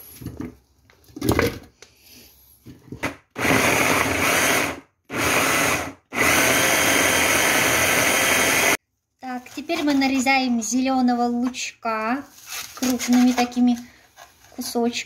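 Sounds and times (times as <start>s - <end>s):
blender chopping: 3.4s - 8.8s.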